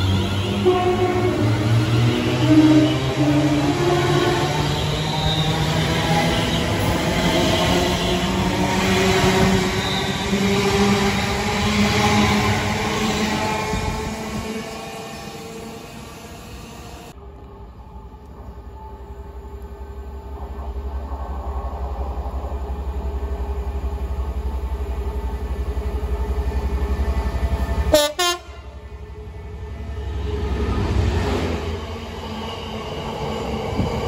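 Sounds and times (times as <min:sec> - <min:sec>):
train horn blasts: 0:00.0 - 0:10.4, 0:27.9 - 0:28.8
diesel locomotive engine throb: 0:17.1 - 0:34.0.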